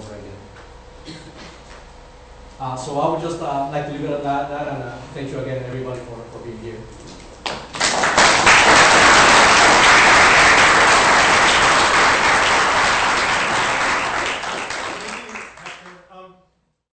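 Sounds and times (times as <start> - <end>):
audience applauding: 7.5 - 16.1.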